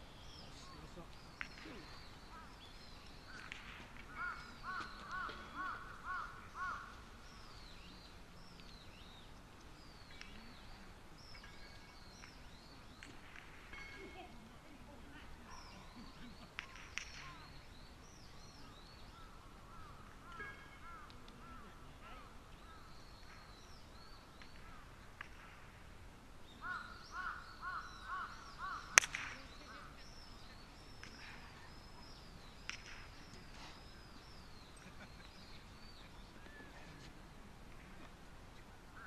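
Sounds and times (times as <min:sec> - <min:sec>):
birds chirping: 0:00.0 - 0:25.8, 0:26.4 - 0:39.0
harsh bird calls: 0:00.2 - 0:08.0, 0:26.5 - 0:37.0
golf club striking ball: 0:28.9 - 0:29.5.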